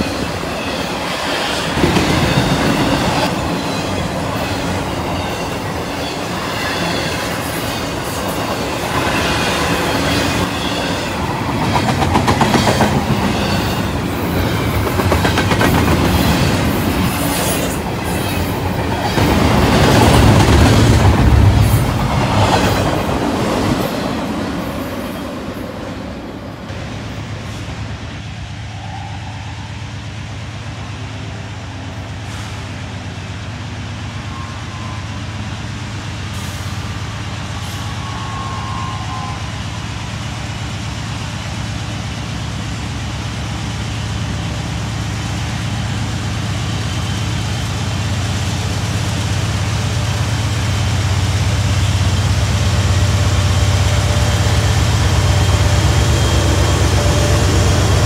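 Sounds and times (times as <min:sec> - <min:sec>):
freight train wheels clattering: 0:00.0 - 0:25.1
distant locomotive drone: 0:00.0 - 0:58.0.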